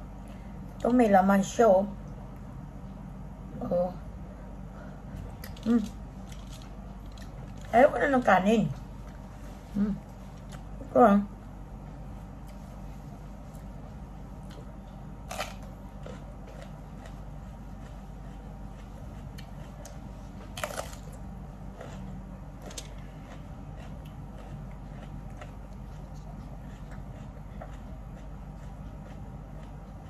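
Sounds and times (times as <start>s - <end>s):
steady low hum: 0.0s - 30.0s
sharp crunches: 15.3s - 16.7s
person chewing: 15.3s - 30.0s.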